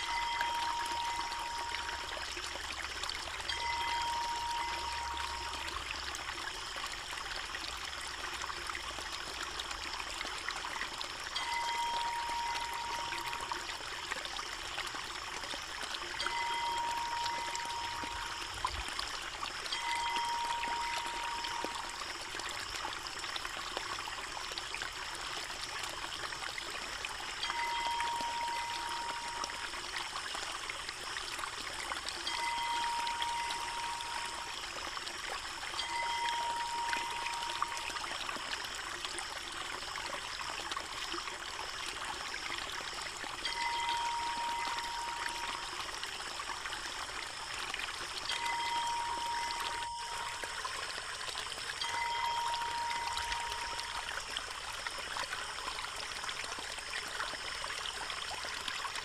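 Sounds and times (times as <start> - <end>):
steady tone: 0.0 - 2.2, 3.5 - 5.8, 11.4 - 13.6, 16.2 - 18.7, 19.7 - 22.0, 27.4 - 29.7, 32.3 - 34.6, 35.8 - 38.0, 43.5 - 45.8, 48.3 - 50.7, 51.8 - 54.2.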